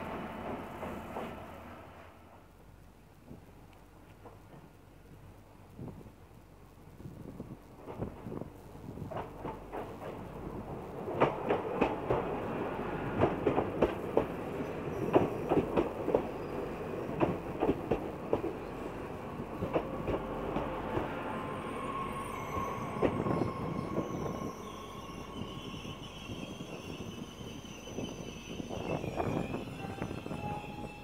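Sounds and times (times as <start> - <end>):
train wheels clacking over rail joints: 13.1 - 16.4, 17.0 - 18.7
train brake squeal: 20.2 - 31.0.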